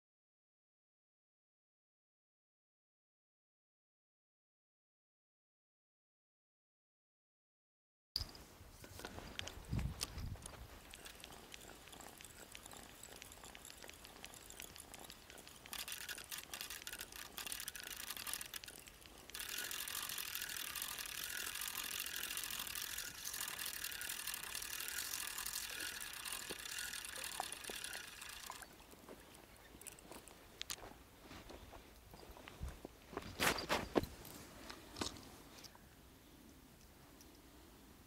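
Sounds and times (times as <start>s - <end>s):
fishing reel ticking: 8.2s - 30.9s
fishing reel gears whirring: 8.9s - 30.8s.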